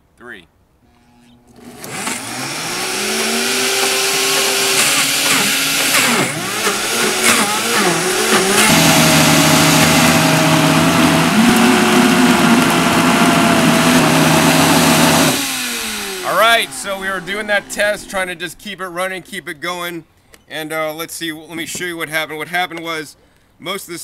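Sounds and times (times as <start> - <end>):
blenders whirring: 0.9 - 18.1.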